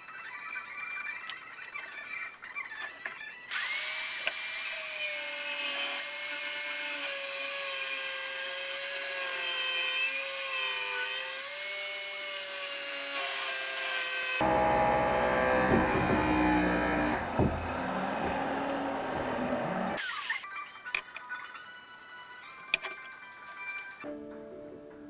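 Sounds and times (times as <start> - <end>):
angle grinder cutting metal rod: 3.5 - 17.3, 20.0 - 21.2.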